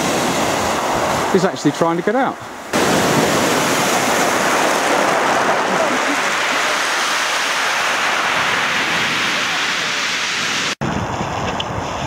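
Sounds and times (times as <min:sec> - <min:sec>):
sea surf: 0:00.0 - 0:12.0
wind: 0:00.0 - 0:12.0.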